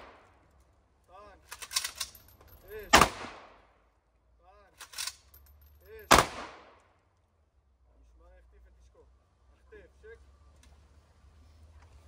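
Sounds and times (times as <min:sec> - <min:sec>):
rifle clicks clattering: 0:01.4 - 0:03.2, 0:04.8 - 0:06.9
rifle volleys: 0:01.5 - 0:02.2.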